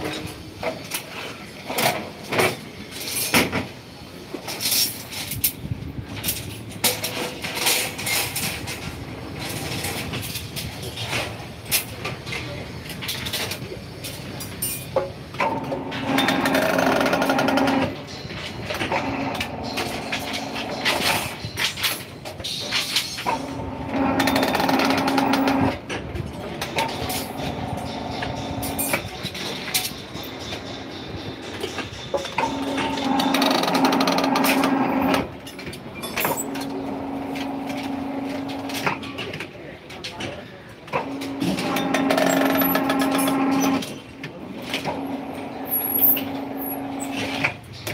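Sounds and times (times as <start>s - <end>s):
rebar bending machine humming: 12.5s - 39.1s, 40.9s - 47.9s
steel bars grating and clanking: 12.9s - 39.4s, 40.9s - 47.9s.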